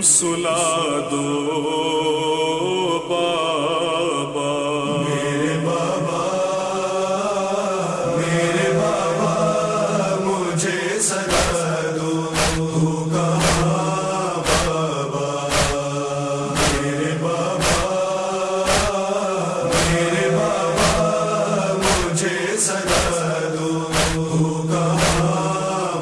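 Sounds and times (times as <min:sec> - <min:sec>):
voices chanting mournful line: 0:00.0 - 0:26.0
sharp chest-beating strikes: 0:11.3 - 0:11.6, 0:12.4 - 0:12.8, 0:13.4 - 0:13.8, 0:14.4 - 0:14.8, 0:15.5 - 0:15.8, 0:16.6 - 0:16.9, 0:17.6 - 0:18.0, 0:18.7 - 0:19.0, 0:19.7 - 0:20.1, 0:20.8 - 0:21.2, 0:21.8 - 0:22.2, 0:22.9 - 0:23.2, 0:23.9 - 0:24.3, 0:25.0 - 0:25.4
steady low drone: 0:12.2 - 0:14.9, 0:15.5 - 0:15.8, 0:16.5 - 0:18.0, 0:18.7 - 0:26.0.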